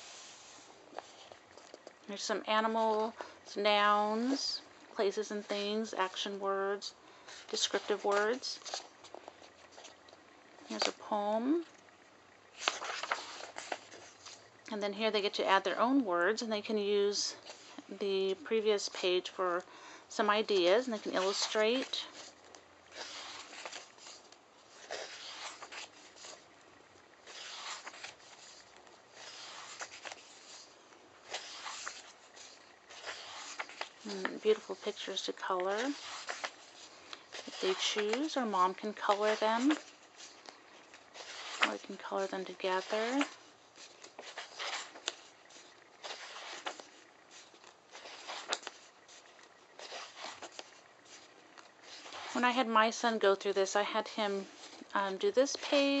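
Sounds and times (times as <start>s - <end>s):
paper pages turning: 0.0s - 2.0s, 7.2s - 11.1s, 12.5s - 14.5s, 20.5s - 26.5s, 27.2s - 52.6s.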